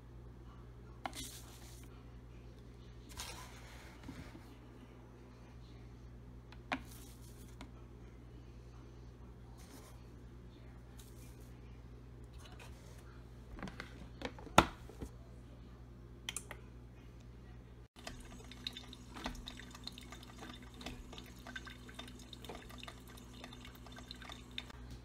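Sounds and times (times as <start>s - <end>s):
coffee maker humming: 18.0s - 25.0s
crackles and drips: 18.0s - 25.0s.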